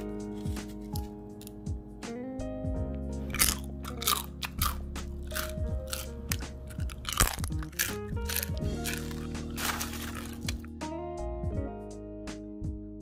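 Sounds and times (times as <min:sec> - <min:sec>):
soft background music: 0:00.0 - 0:13.0
crunchy food being chewed: 0:03.3 - 0:10.7.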